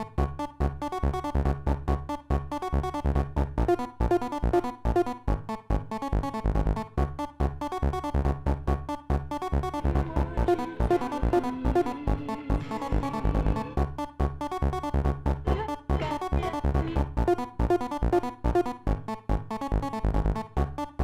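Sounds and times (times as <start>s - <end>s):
held low synth note: 9.5s - 14.0s
short synth notes: 9.5s - 14.0s
deep bass pulses: 9.5s - 17.7s.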